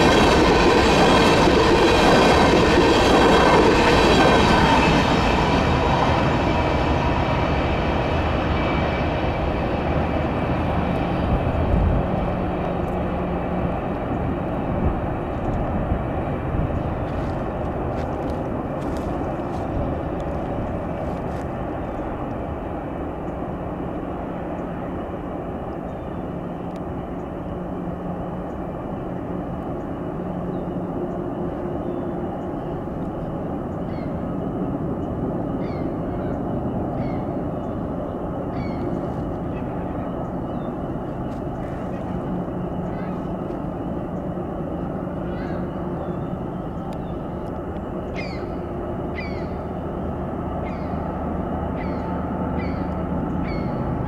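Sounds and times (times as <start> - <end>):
train wheel squeal: 0.0 - 11.4, 24.5 - 54.0
freight train rumbling: 0.0 - 54.0.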